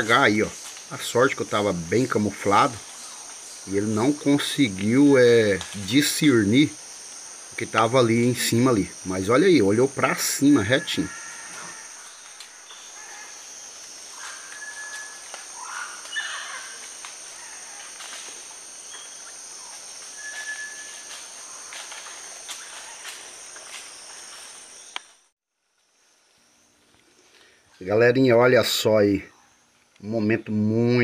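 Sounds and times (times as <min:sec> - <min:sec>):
high-pitched insect drone: 0:00.0 - 0:25.2
bird whistles: 0:14.2 - 0:16.4, 0:20.2 - 0:21.0
clicks and rustles: 0:14.5 - 0:18.6.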